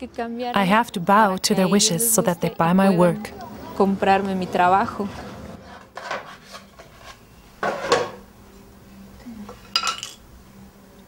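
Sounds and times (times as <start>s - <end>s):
paintbrush scraping in clay cups: 5.1s - 8.0s.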